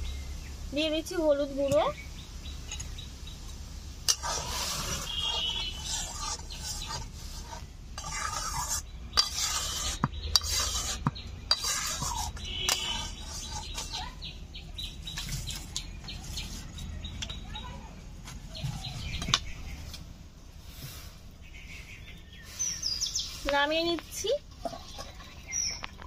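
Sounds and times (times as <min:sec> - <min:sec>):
spoon scraping a pot: 0:04.0 - 0:14.2.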